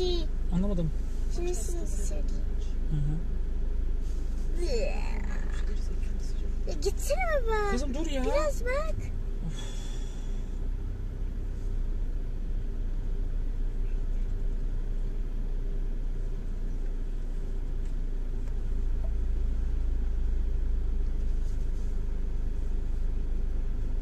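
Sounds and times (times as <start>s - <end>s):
car engine running: 0.0s - 24.0s
faint steady hum: 0.0s - 24.0s
low cabin rumble: 0.0s - 24.0s.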